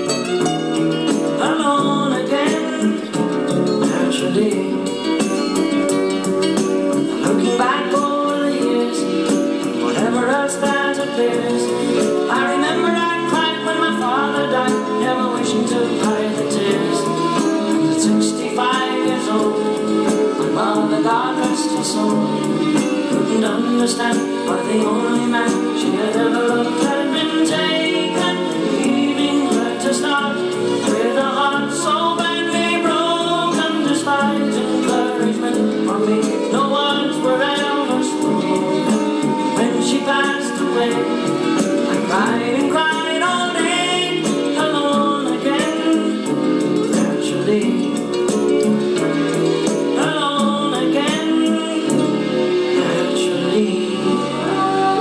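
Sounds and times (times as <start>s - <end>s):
rock and roll song with vocals: 0.0s - 55.0s.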